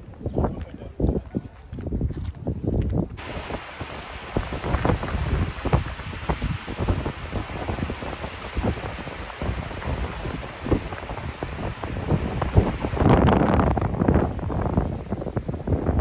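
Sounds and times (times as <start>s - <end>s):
wind buffeting microphone: 0.0s - 16.0s
small waves breaking on sand: 3.2s - 13.1s.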